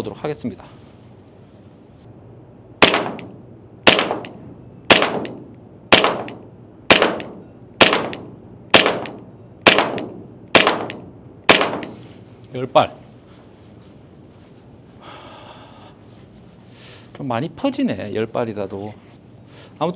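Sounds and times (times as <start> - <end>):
airsoft pistol shots: 2.8 - 12.0.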